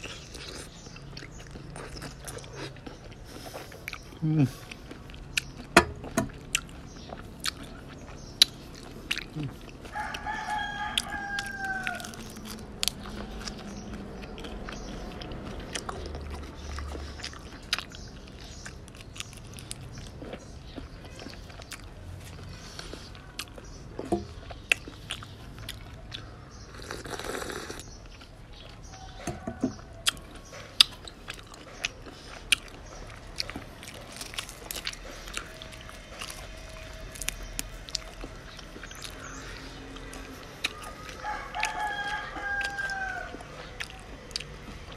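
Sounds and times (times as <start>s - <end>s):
person chewing and crunching: 0.0s - 44.9s
rooster crowing: 9.8s - 12.6s, 28.9s - 30.4s, 40.7s - 44.1s.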